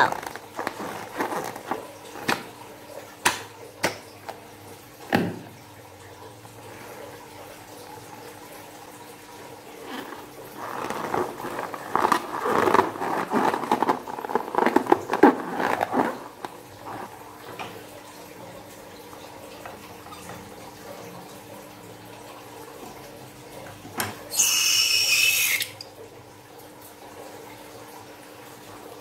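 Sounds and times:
slime balloon squishing: 9.9 - 17.2.

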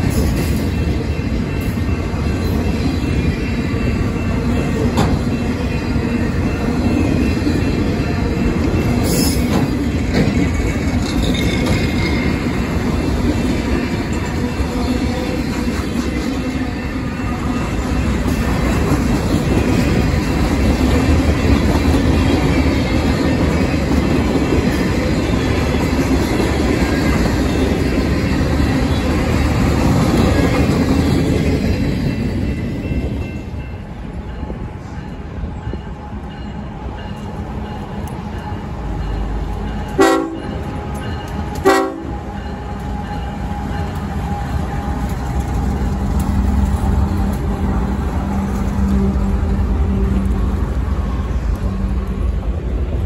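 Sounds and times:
railroad cars rumbling past: 0.0 - 53.0
train horn blasts: 39.9 - 40.6, 41.6 - 42.3.

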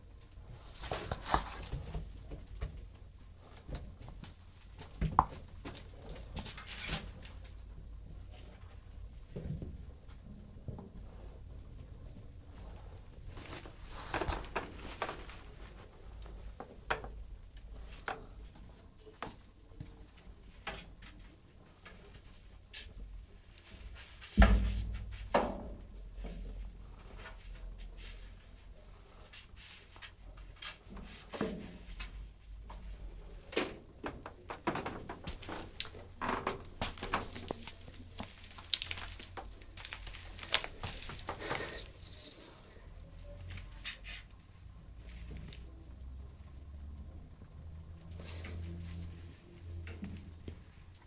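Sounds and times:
kittens scratching on metal tray: 36.7 - 42.6
faint high chirps: 37.0 - 39.8, 41.7 - 42.8.

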